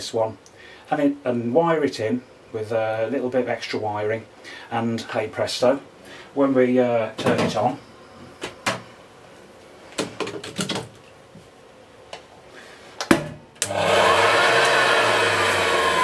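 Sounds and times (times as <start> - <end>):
vacuum cleaner motor running: 13.6 - 16.0.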